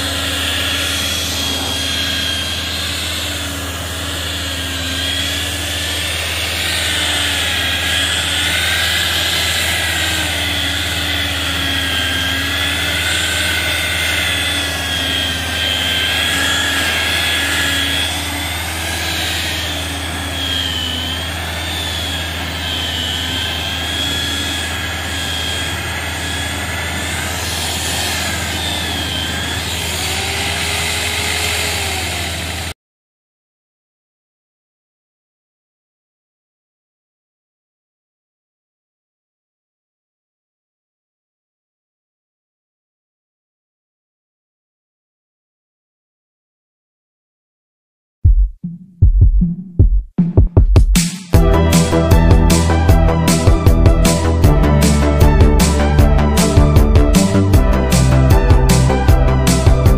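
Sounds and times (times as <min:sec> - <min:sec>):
rotary polisher motor whine: 0:00.0 - 0:32.8, 0:51.4 - 0:59.9.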